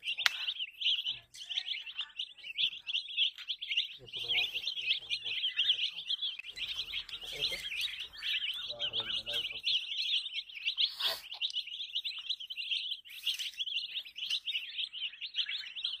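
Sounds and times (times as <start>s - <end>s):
chicks peeping: 0.0s - 16.0s.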